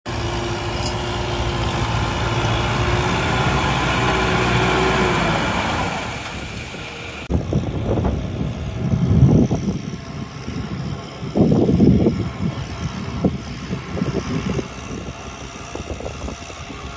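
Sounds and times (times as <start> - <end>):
tractor diesel engine under load: 0.1 - 16.9
wind gusts on microphone: 2.4 - 16.9.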